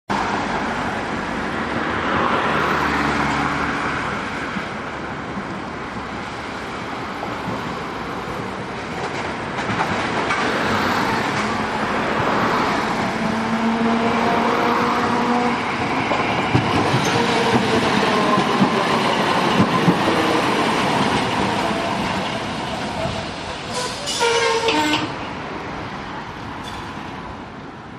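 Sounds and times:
streetcar motor whine: 11.2 - 24.2
wheels clacking over rail: 14.9 - 25.2.

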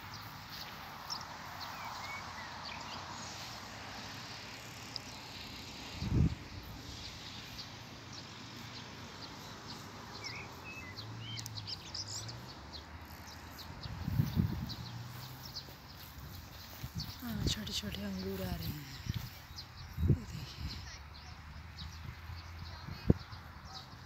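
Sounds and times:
faint outdoor hiss: 0.0 - 24.0
bird chirps: 6.9 - 24.0.

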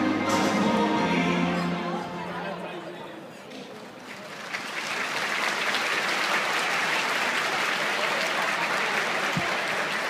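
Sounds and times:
audience clapping: 3.5 - 10.0.

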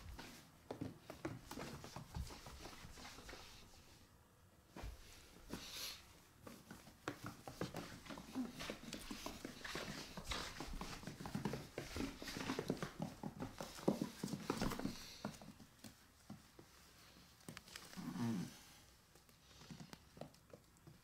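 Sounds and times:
puppy claws clicking on wooden floor: 19.1 - 21.0.

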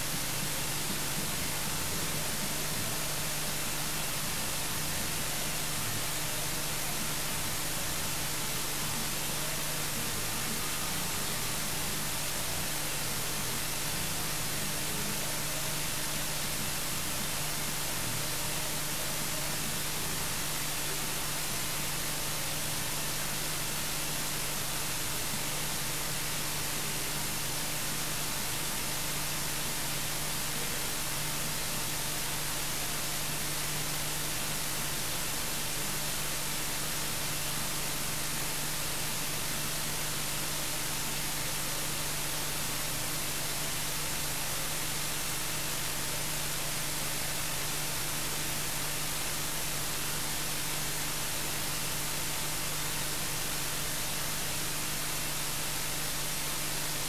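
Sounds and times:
static hiss: 0.0 - 57.0.

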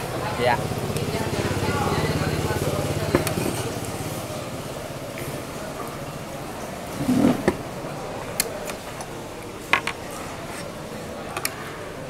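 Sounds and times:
room hum: 0.0 - 12.0
tableware clicking and knocking: 9.6 - 11.4.

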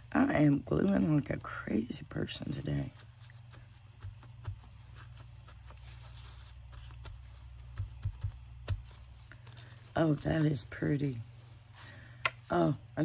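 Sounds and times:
steady low hum: 0.0 - 13.0
paper rustling: 2.4 - 12.2.

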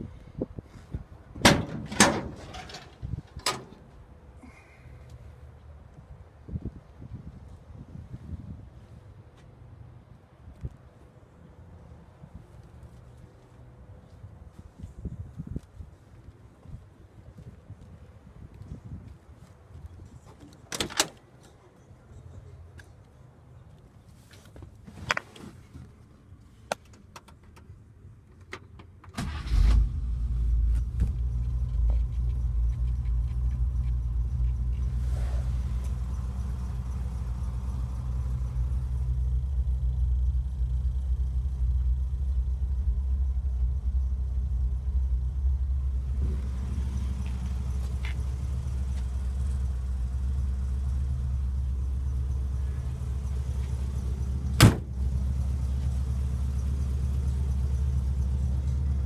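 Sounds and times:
car engine starting and idling: 28.8 - 59.0.

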